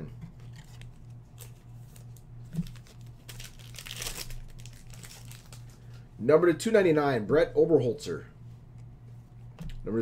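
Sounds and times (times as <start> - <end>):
card packaging crinkling: 0.4 - 5.9.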